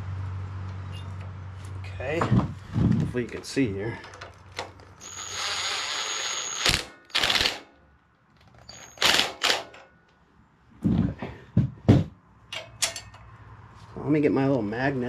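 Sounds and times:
rattling bursts: 2.2s - 10.0s
cordless driver whine: 4.6s - 7.5s.

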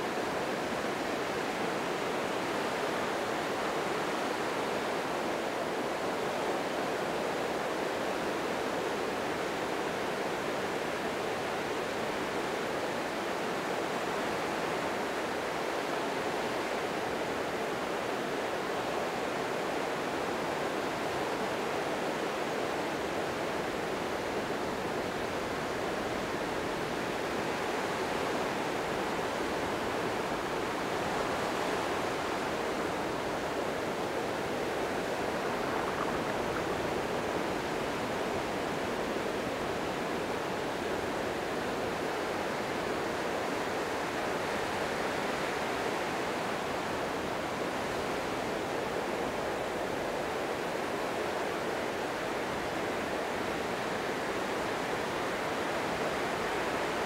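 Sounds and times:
gentle waves washing on sand: 0.0s - 57.0s.

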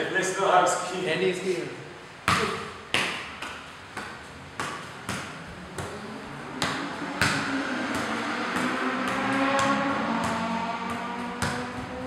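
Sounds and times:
bare feet kicking football: 2.2s - 6.0s, 6.6s - 12.0s.

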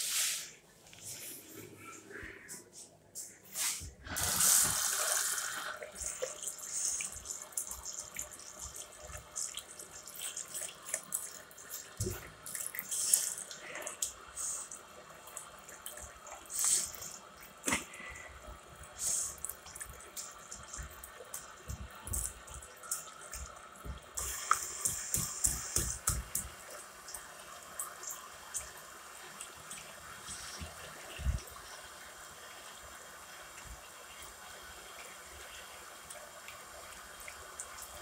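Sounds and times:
hands washing under water: 0.0s - 28.9s
tap water running into basin: 3.9s - 38.0s.

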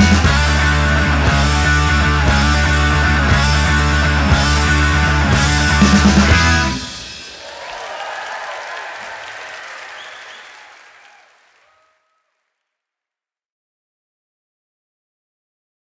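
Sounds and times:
live rock band playing: 0.0s - 7.3s
audience applause: 6.8s - 12.3s.

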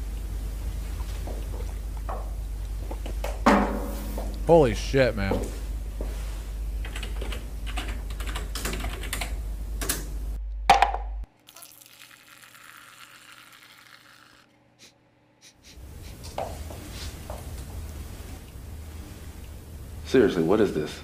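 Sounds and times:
typing on computer keyboard: 6.9s - 10.0s.

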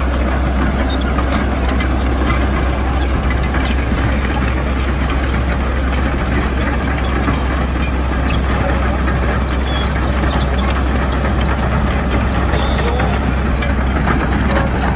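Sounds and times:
excavator diesel engine running: 0.0s - 14.9s
steel tracks clattering: 0.0s - 14.9s.

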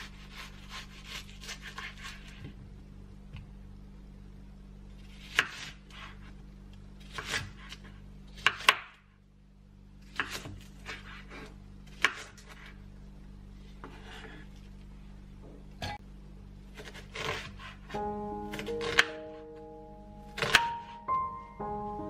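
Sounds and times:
knife cuts and scrapes: 0.0s - 2.5s, 5.0s - 6.4s, 7.0s - 8.9s, 10.0s - 12.8s, 16.7s - 18.0s
low steady hum: 0.0s - 22.0s
knife chopping on wooden board: 20.4s - 20.9s.

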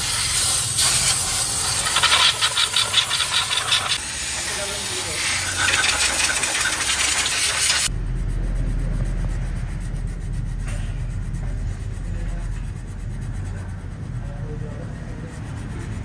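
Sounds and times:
compressed air hissing: 0.0s - 7.9s
sandpaper scratching: 0.0s - 7.9s, 10.0s - 16.0s
low background rumble: 7.9s - 16.0s.

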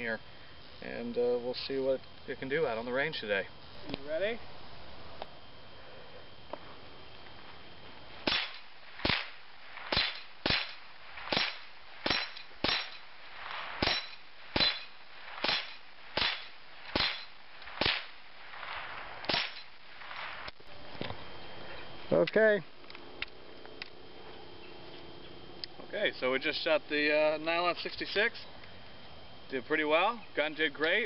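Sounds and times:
rifle shots: 8.2s - 20.5s
bullets hitting steel plates: 8.3s - 13.1s, 13.8s - 18.2s, 19.3s - 19.8s.

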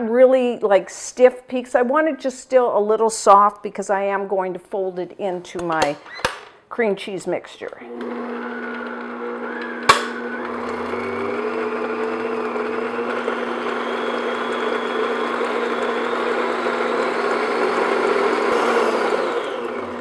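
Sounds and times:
stand mixer motor hum: 7.9s - 20.0s.

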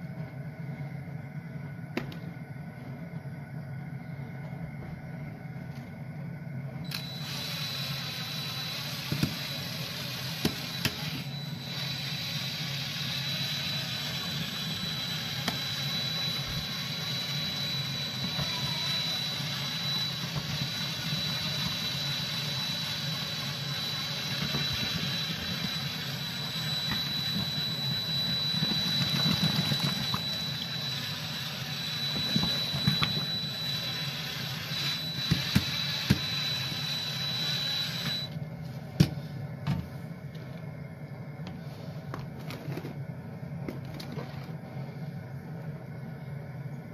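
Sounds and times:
cordless drill motor whine: 6.8s - 38.4s.

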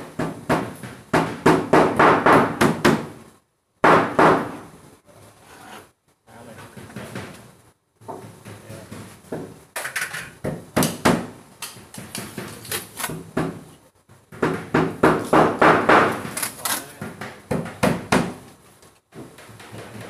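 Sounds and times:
knocks and clattering on plywood: 0.0s - 3.2s, 6.7s - 18.5s, 19.1s - 20.0s.

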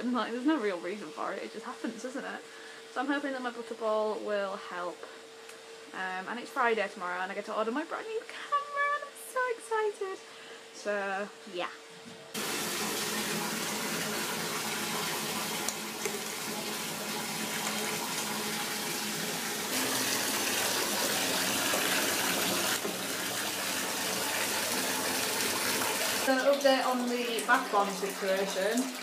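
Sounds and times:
bath tap running: 12.4s - 29.0s.

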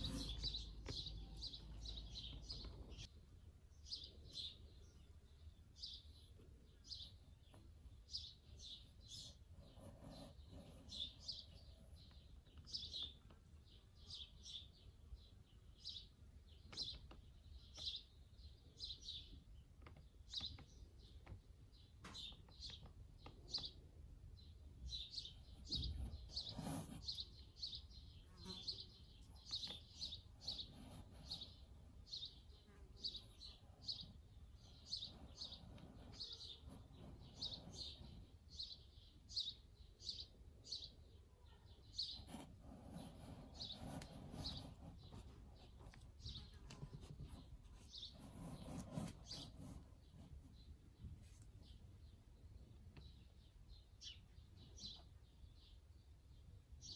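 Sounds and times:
small bird chirping: 0.0s - 56.9s.

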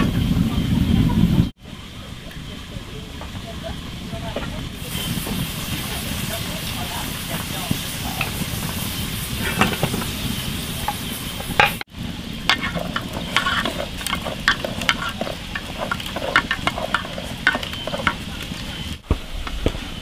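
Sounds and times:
steam hissing under pot lid: 4.7s - 20.0s
chopsticks scraping metal pot: 12.5s - 18.8s.

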